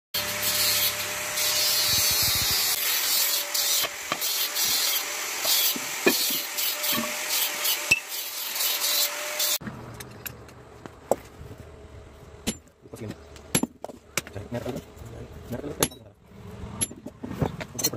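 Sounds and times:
sharp metal knocks: 0:13.5 - 0:14.3.

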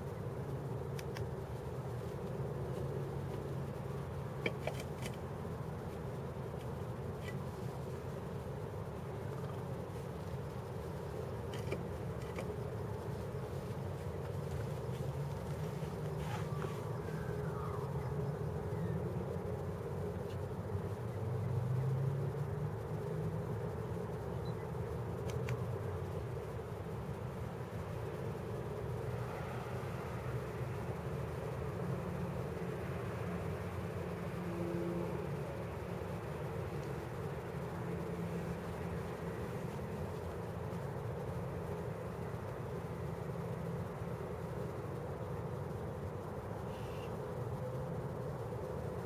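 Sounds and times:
distant traffic hum: 0:00.0 - 0:49.0
faint high ticks: 0:00.5 - 0:27.2, 0:34.0 - 0:47.8
faint sharp ticks: 0:00.9 - 0:03.5, 0:24.3 - 0:26.1.

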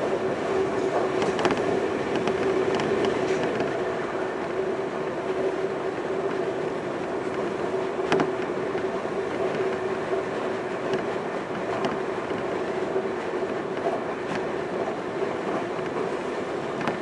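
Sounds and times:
electric train running: 0:00.0 - 0:17.0.

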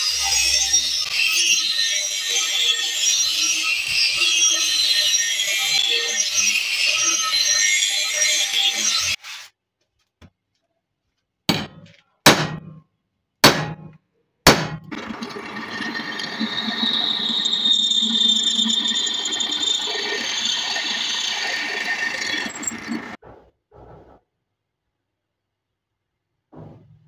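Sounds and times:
sharp metallic knocks: 0:11.5 - 0:12.8, 0:13.4 - 0:14.9
drill press boring through steel: 0:14.7 - 0:23.2.

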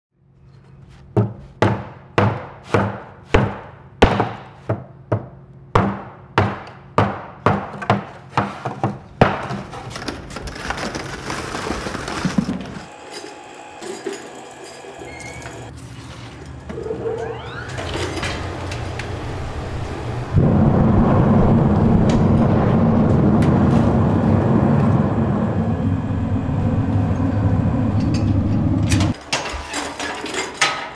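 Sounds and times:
low steady hum: 0:15.0 - 0:29.2.

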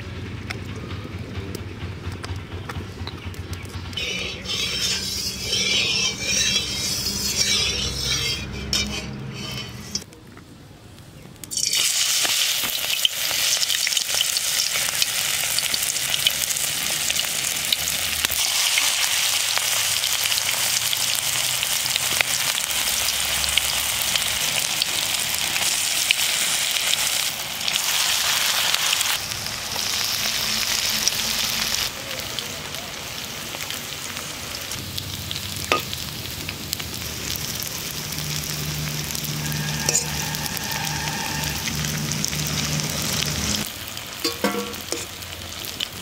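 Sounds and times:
fritters sizzling in hot oil: 0:11.5 - 0:46.0.

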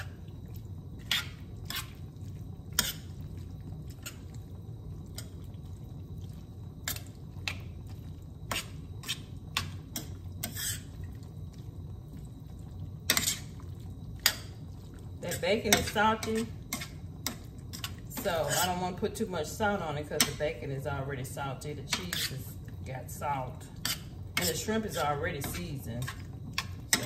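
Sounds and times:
steady low hum: 0:00.0 - 0:27.0
metal spoon scraping pan: 0:01.0 - 0:02.0, 0:02.7 - 0:03.1, 0:08.5 - 0:10.9, 0:13.1 - 0:13.5, 0:15.2 - 0:18.8, 0:21.8 - 0:22.5, 0:23.7 - 0:27.0.

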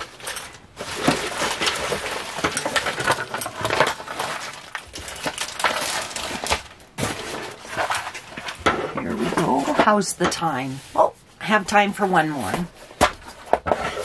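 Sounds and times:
jewelry clinking and rattling: 0:00.0 - 0:06.6.

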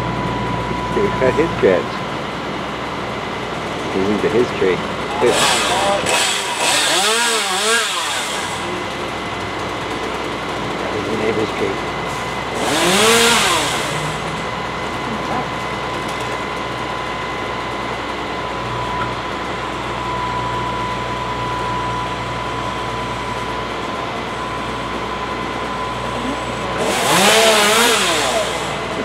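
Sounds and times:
chainsaw revving: 0:05.0 - 0:15.3, 0:25.7 - 0:29.0.

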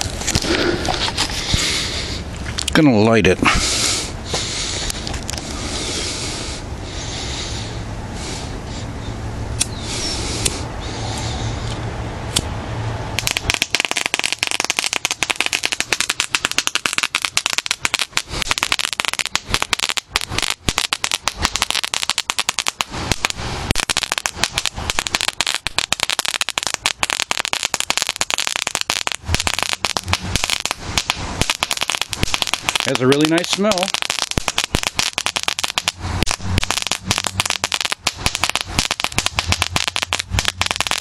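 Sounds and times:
crackling stick popping: 0:00.0 - 0:01.8, 0:02.4 - 0:02.8, 0:13.2 - 0:41.0
rubbing and handling noise: 0:00.0 - 0:02.8.

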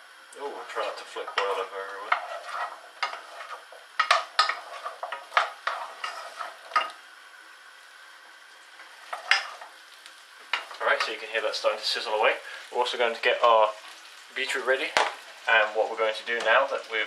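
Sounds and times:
vegetables sizzling in oil: 0:00.0 - 0:17.0
spoon knocking and scraping a pan: 0:00.8 - 0:07.0, 0:08.8 - 0:09.8, 0:10.4 - 0:11.2.

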